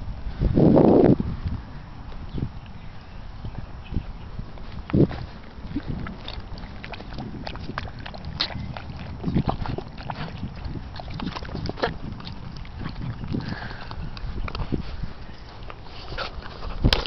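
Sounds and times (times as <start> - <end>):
steady low rumble: 0.0 - 17.0
puppy lapping water: 4.6 - 17.0.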